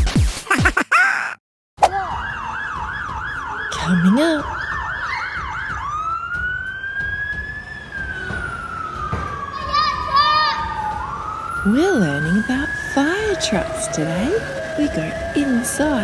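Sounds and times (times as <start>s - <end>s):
electronic siren warbling and wailing: 7.2s - 16.0s.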